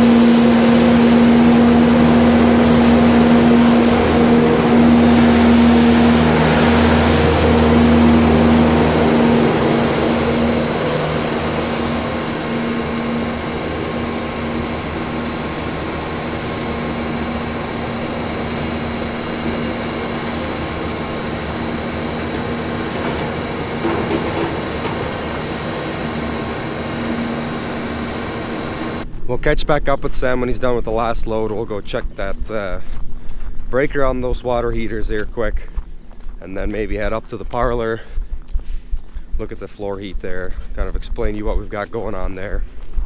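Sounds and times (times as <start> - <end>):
skid-steer loader engine running: 0.0 - 29.1.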